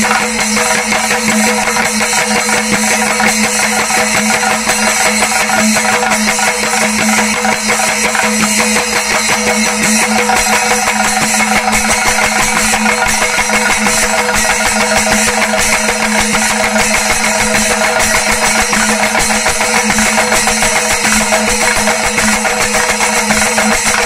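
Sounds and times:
hand drums beaten fast: 0:00.0 - 0:24.0.

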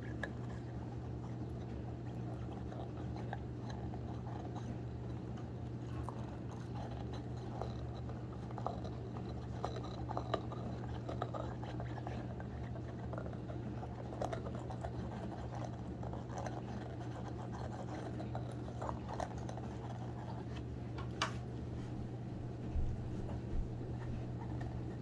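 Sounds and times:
dog chewing clicks: 0:00.0 - 0:21.2
steady low hum: 0:00.0 - 0:25.0.

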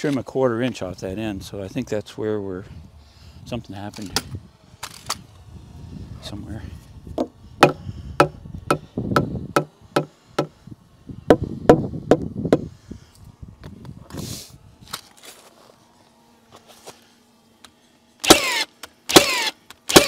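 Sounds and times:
hammer blows on wood: 0:07.2 - 0:10.6
power tool bursts: 0:18.2 - 0:20.0.

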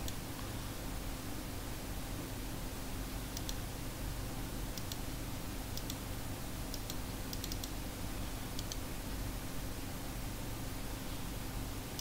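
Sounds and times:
low electrical hum: 0:00.0 - 0:12.0
computer mouse clicks: 0:03.3 - 0:03.6, 0:04.8 - 0:05.1, 0:05.8 - 0:06.0, 0:06.7 - 0:07.8, 0:08.6 - 0:08.8.

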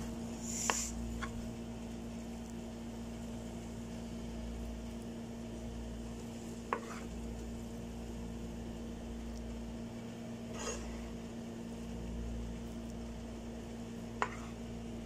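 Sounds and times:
faint sizzle: 0:00.0 - 0:15.0
steady low hum: 0:00.0 - 0:15.0
spatula stirring noodles in pan: 0:05.9 - 0:07.9, 0:10.1 - 0:11.5, 0:12.6 - 0:15.0.

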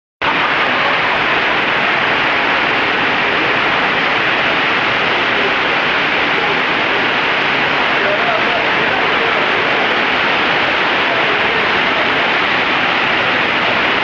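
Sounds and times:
rushing water: 0:00.2 - 0:14.0.

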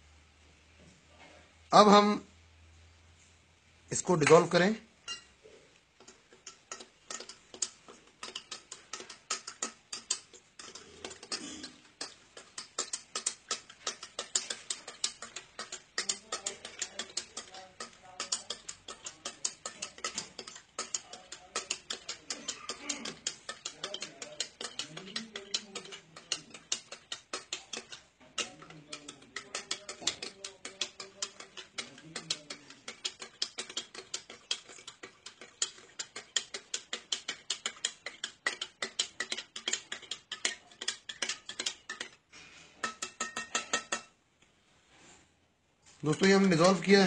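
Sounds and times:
stirrer clinking against glass: 0:04.2 - 0:05.3, 0:06.0 - 0:42.2, 0:42.8 - 0:44.1, 0:46.0 - 0:47.0.

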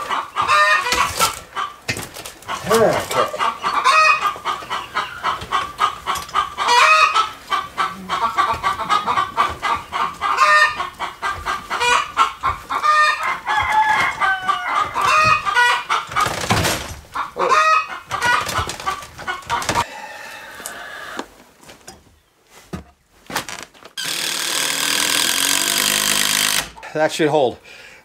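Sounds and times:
chickens clucking and squawking: 0:00.0 - 0:21.6.

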